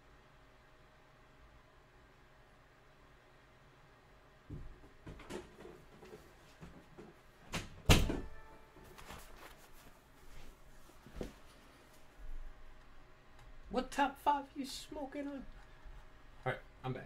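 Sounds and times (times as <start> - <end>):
knocks and rustling: 4.5 - 9.7.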